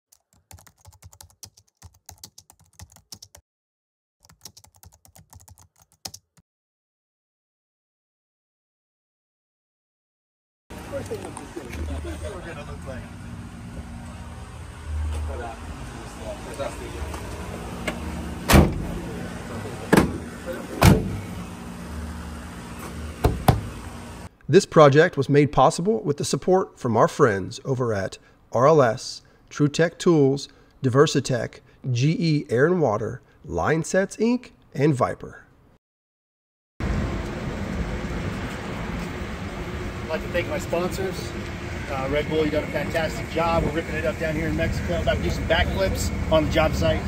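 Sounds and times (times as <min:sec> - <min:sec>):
computer keyboard typing: 0:00.1 - 0:03.4, 0:04.2 - 0:06.4
van doors slamming shut: 0:18.4 - 0:19.0, 0:19.8 - 0:21.3, 0:23.2 - 0:23.7
steady low hum: 0:36.8 - 0:47.0.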